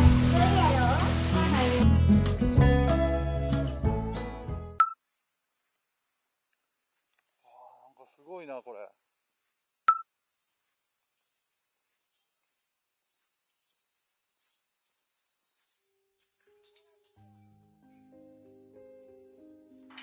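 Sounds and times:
insects chorus: 4.8s - 20.0s.

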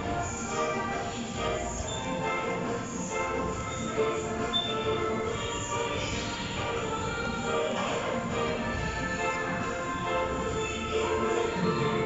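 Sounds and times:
background music with sustained notes: 0.0s - 12.0s.

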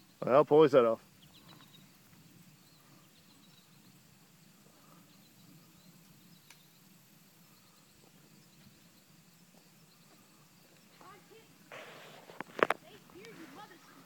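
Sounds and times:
faint tick: 6.4s - 6.6s.

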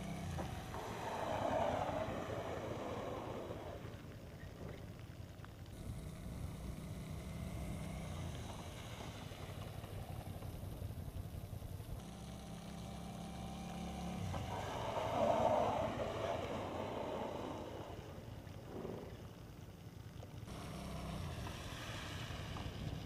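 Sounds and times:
water spray from tyres: 0.0s - 19.7s, 20.3s - 23.0s
motorcycle engine humming: 0.0s - 23.0s.

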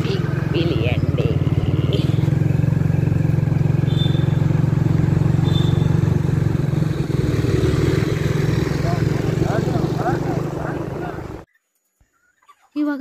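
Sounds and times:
motorcycle engine running: 0.0s - 11.5s
road noise: 0.0s - 11.5s.

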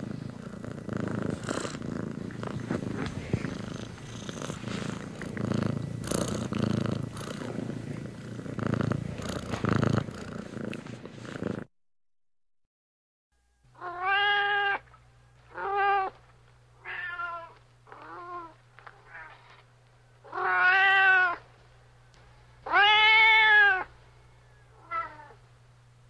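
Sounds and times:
cat meowing: 13.8s - 14.8s, 16.8s - 19.4s, 20.3s - 21.4s, 22.6s - 23.9s, 24.8s - 25.4s.

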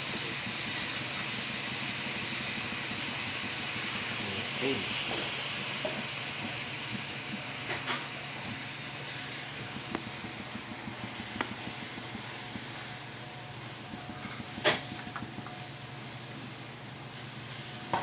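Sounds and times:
omelette sizzling in a pan: 0.0s - 18.0s.

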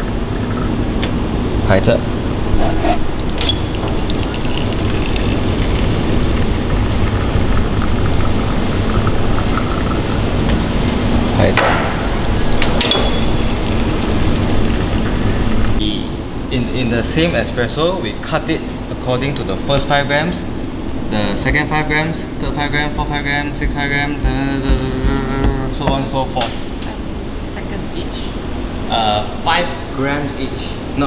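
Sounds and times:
espresso machine pump hum: 2.3s - 11.4s, 12.1s - 15.8s
glasses clinking: 3.4s - 4.8s, 12.6s - 13.8s.

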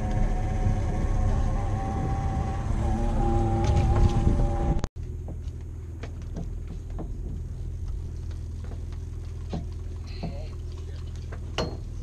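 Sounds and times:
boat engine drone: 0.0s - 12.0s.

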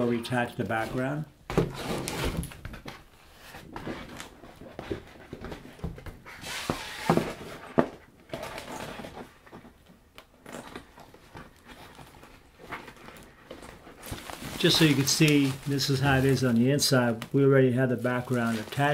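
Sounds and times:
sheet and fabric rustling: 10.8s - 17.2s, 18.0s - 18.9s.

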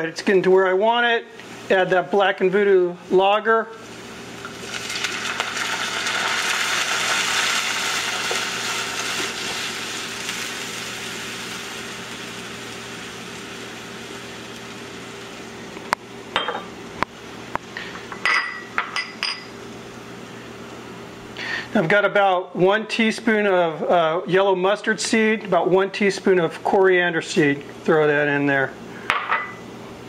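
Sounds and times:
beer hissing and fizzing in pot: 1.4s - 22.0s.

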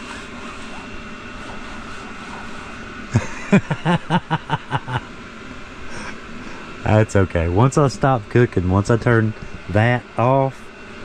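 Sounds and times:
heater whirring: 0.0s - 11.0s.

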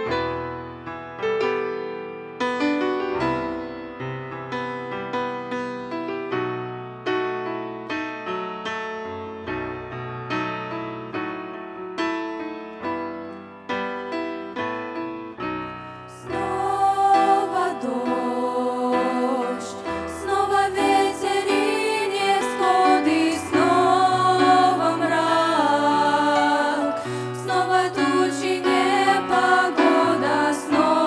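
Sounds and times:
grand piano playing: 0.0s - 31.0s
girls singing: 16.1s - 31.0s.

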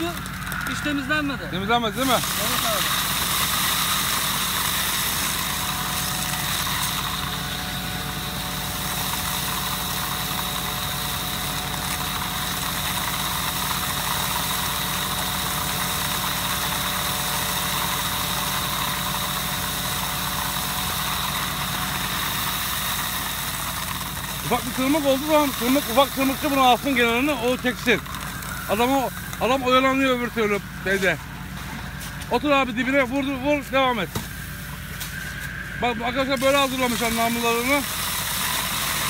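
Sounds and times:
harvester engine hum: 0.0s - 39.0s
high whine: 24.4s - 38.0s.

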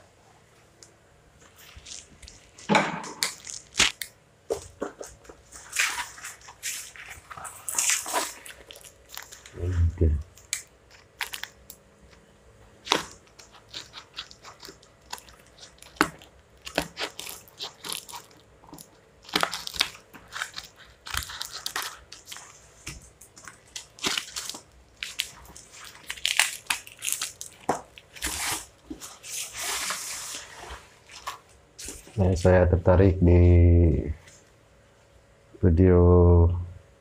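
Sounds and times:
tape and cap scratching: 12.8s - 18.4s, 28.2s - 30.4s.

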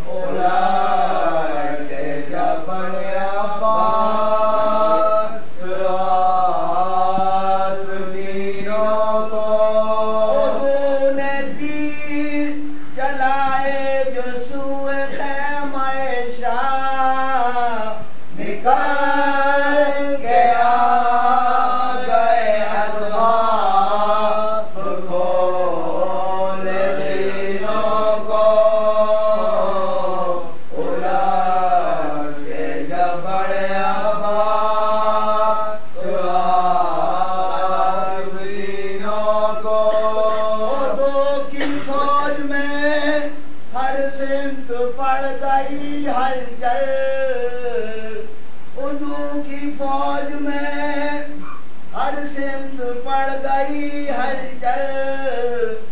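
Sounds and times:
men chanting in unison: 0.0s - 55.9s.

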